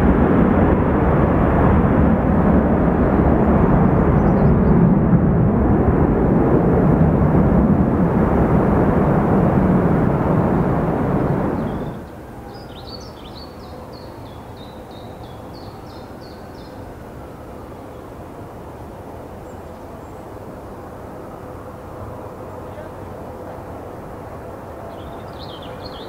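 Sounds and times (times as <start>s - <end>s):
jet engine rumble: 0.0s - 26.0s
small bird chirping: 11.6s - 16.8s.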